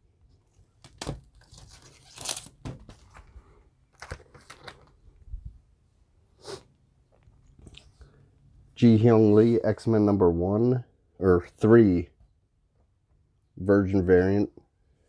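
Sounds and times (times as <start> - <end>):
plastic sleeves crinkling: 0.8 - 5.3.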